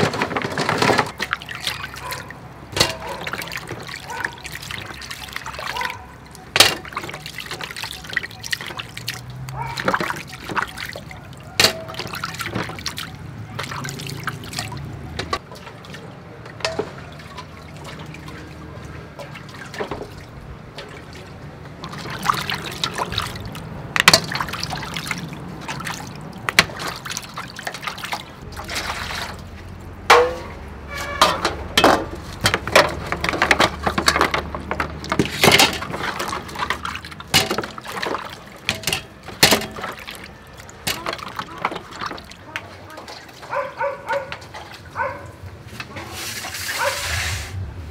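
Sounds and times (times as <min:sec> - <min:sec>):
water trickling and splashing: 0:00.0 - 0:47.9
clams clicking and knocking: 0:23.6 - 0:24.4, 0:31.2 - 0:42.4.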